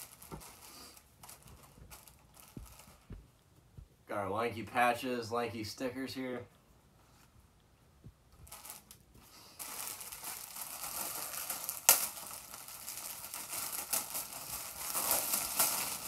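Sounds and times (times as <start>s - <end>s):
plastic packaging crinkling: 0.0s - 3.2s, 8.4s - 16.0s.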